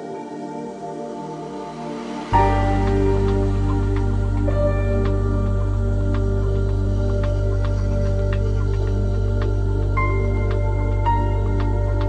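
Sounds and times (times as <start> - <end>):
soft new-age music: 0.0 - 12.0.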